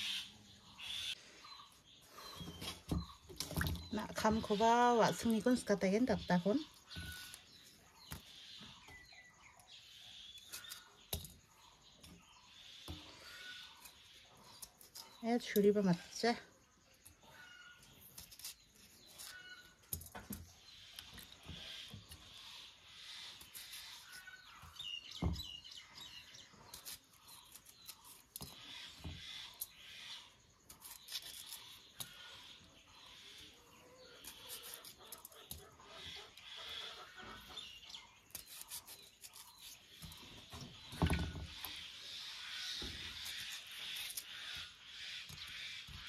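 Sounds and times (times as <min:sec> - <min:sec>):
faint birds chirping: 0:00.0 - 0:46.0.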